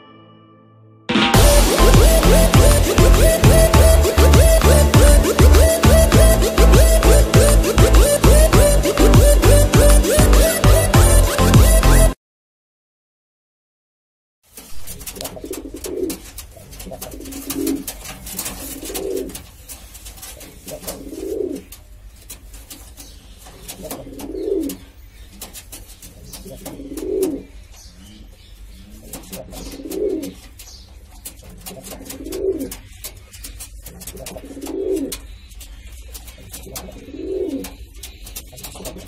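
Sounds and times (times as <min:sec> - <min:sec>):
pigeon cooing: 0:01.4 - 0:12.2, 0:14.9 - 0:19.5, 0:20.2 - 0:21.8, 0:22.7 - 0:39.0
faint clicks and scratches: 0:14.5 - 0:39.0.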